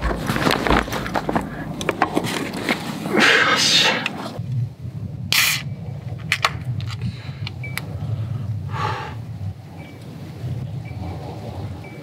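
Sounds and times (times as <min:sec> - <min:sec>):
cooler bag rustling: 0:00.0 - 0:03.2
low steady rumble: 0:00.0 - 0:12.0.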